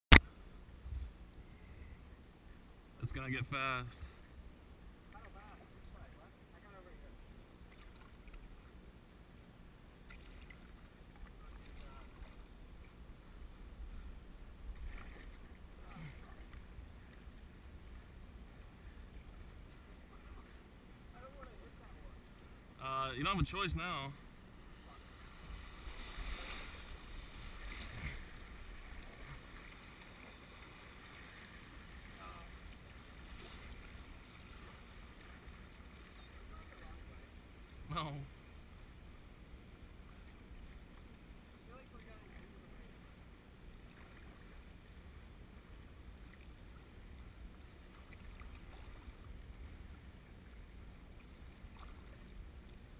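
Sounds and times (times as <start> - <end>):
river water rushing against hull: 10.0 - 52.7
water splashing against canoe: 14.7 - 18.6, 24.7 - 37.8.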